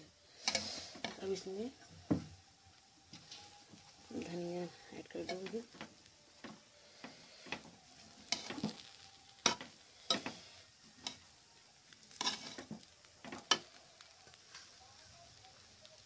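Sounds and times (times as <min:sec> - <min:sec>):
metal spatula scraping pan: 0:00.4 - 0:01.2, 0:07.5 - 0:11.3, 0:12.1 - 0:12.8.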